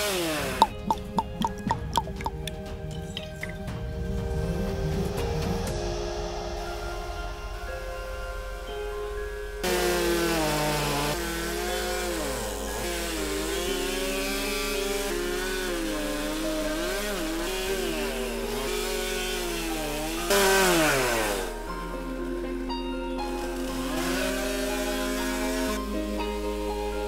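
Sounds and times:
chainsaw cutting wood: 0:00.0 - 0:02.4, 0:09.6 - 0:21.7, 0:23.3 - 0:26.2.

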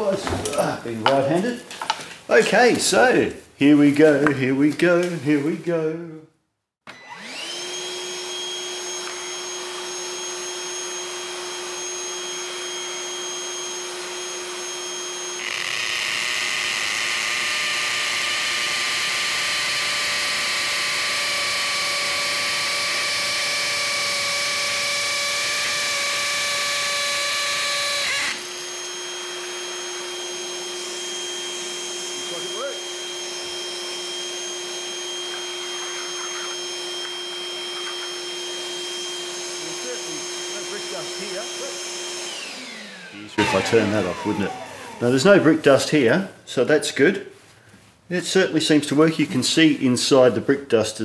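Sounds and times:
drill boring into brick: 0:06.8 - 0:45.3
vacuum cleaner whining: 0:06.8 - 0:46.1.

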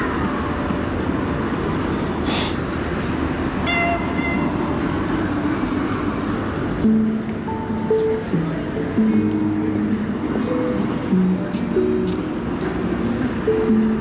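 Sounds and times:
traffic rumble: 0:00.0 - 0:14.0
music: 0:06.6 - 0:14.0.

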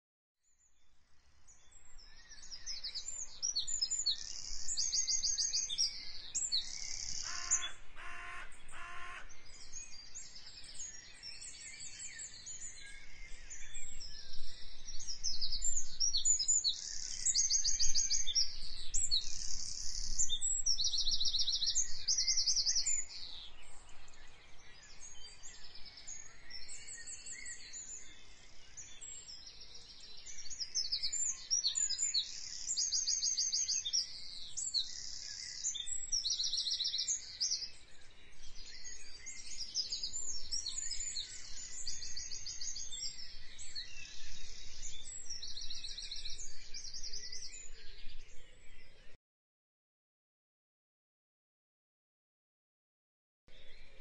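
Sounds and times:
songbirds chirping and trilling: 0:00.4 - 0:49.2, 0:53.5 - 0:54.0
lower bird call: 0:06.7 - 0:09.5.

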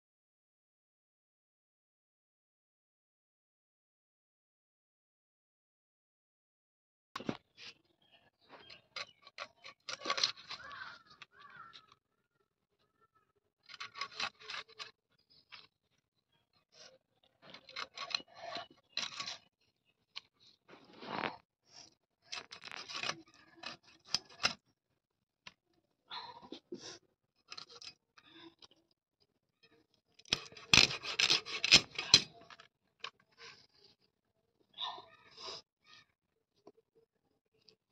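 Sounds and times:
fish scraping against blade: 0:30.3 - 0:32.3.

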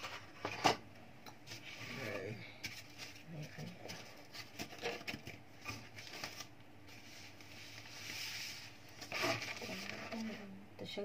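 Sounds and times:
plastic wrapping rustling: 0:02.6 - 0:10.5.

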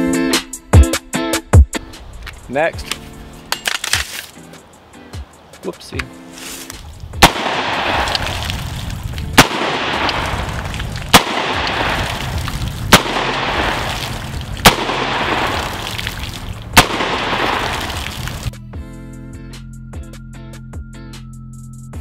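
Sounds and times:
gunshots: 0:07.2 - 0:08.6, 0:09.3 - 0:18.5.

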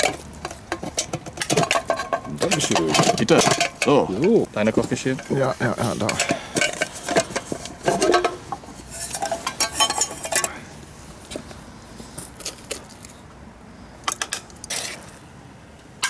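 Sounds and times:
metal spoon clinking against pot: 0:06.0 - 0:10.6.

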